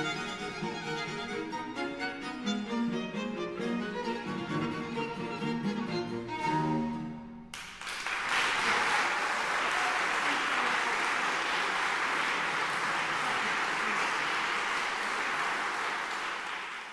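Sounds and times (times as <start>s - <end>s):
audience applauding: 7.5s - 16.9s.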